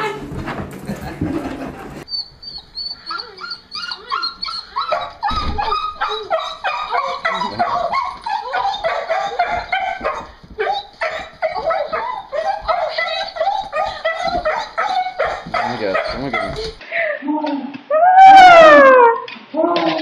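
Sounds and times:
dog whining and yipping: 2.1s - 16.8s.

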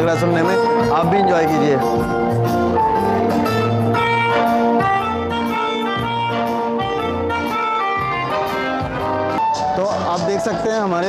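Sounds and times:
backing track with bass: 0.0s - 11.0s
melodica melody: 0.0s - 11.0s.

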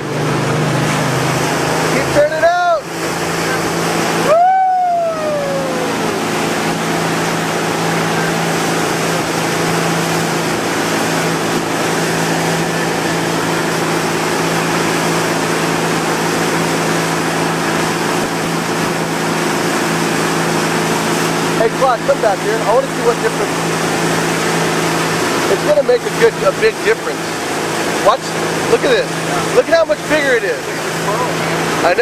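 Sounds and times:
boat engine running: 0.0s - 32.0s
churning wake water: 0.0s - 32.0s
wind: 0.0s - 32.0s
person shouting: 4.2s - 6.2s.

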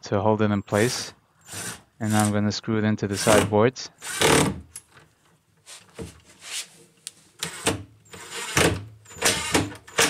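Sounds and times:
cordless drill driving a screw: 1.4s - 2.3s, 3.2s - 4.6s, 7.4s - 10.0s.

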